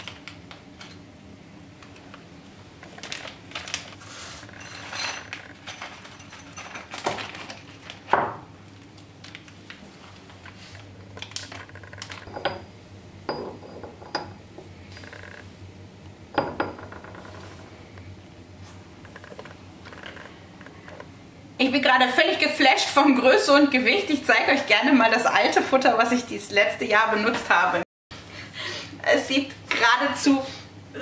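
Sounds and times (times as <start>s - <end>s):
metal clinks and knocks: 4.5s - 8.4s.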